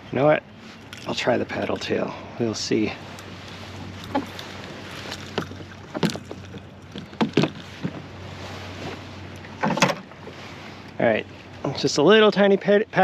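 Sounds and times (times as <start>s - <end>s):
gear knocking in canoe hull: 4.0s - 8.1s.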